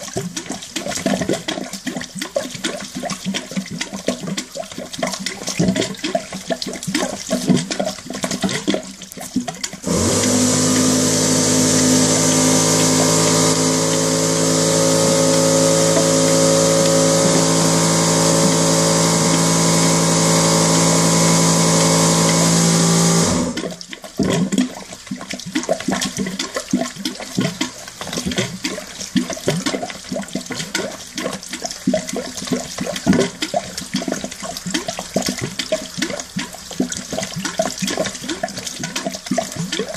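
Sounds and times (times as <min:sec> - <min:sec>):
water splashing into bowl: 0:00.0 - 0:39.9
loud water rush: 0:09.8 - 0:23.6
low hum: 0:09.9 - 0:23.6.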